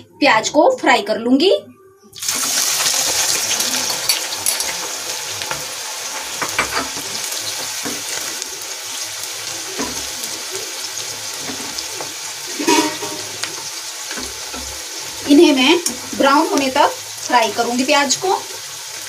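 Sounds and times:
onions sizzling in hot oil: 2.2 - 19.0
skimmer knocking against pan: 12.0 - 16.0.

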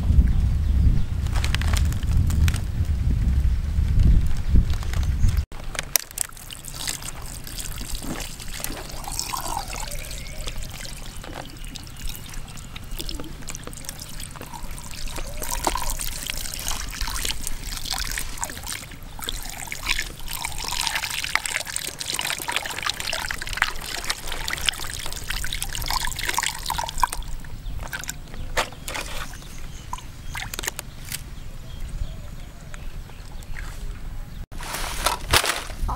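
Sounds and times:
water trickling and splashing: 6.0 - 30.9.

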